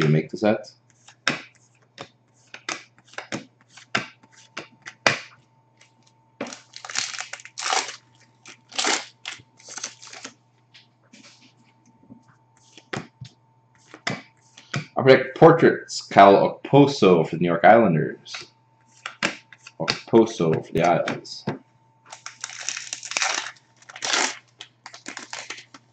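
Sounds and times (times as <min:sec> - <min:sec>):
wrapper tearing and crinkling: 0:06.4 - 0:10.3, 0:22.1 - 0:25.8.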